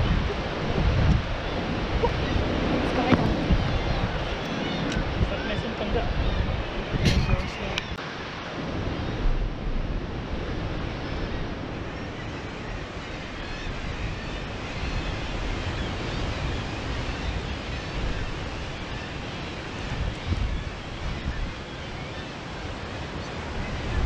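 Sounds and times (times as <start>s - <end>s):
sea surf breaking against rock: 0.0s - 24.0s
wind buffeting microphone: 0.0s - 24.0s.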